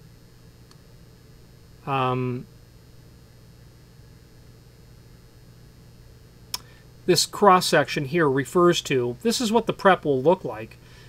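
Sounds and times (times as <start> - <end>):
low steady hum: 0.0 - 11.0
man saying uhh: 1.8 - 2.5.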